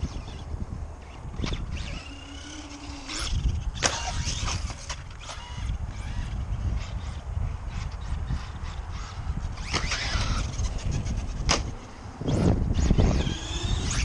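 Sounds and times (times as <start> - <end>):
toy truck motor whine: 0.0 - 14.0
wind rumbling on microphone: 0.0 - 14.0.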